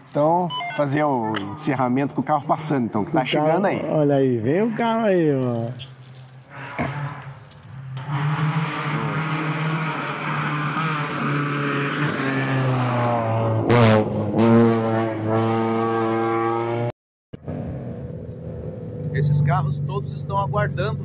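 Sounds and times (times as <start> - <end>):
rally car engine at high revs: 8.0 - 19.2.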